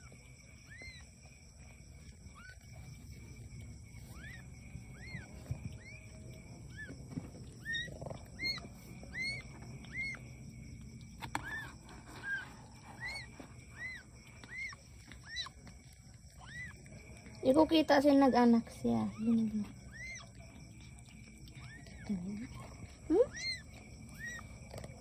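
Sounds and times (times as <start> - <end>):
kittens mewing: 3.9 - 10.3, 11.2 - 16.9, 19.1 - 25.0.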